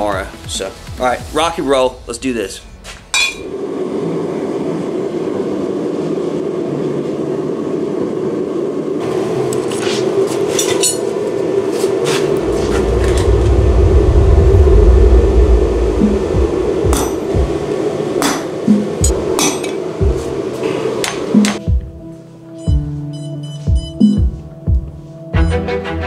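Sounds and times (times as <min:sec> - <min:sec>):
loud low rumble: 0:01.2 - 0:06.9, 0:12.0 - 0:19.4
forge roaring: 0:01.8 - 0:09.4, 0:11.4 - 0:19.4
hammer striking steel on anvil: 0:03.1 - 0:03.5, 0:16.9 - 0:17.4, 0:18.2 - 0:19.8.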